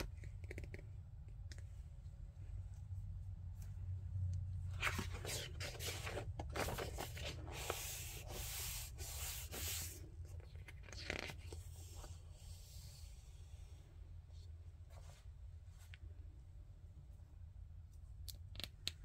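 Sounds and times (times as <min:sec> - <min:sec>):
paper rustling: 0:04.7 - 0:12.1
hands rubbing pages: 0:04.7 - 0:13.2.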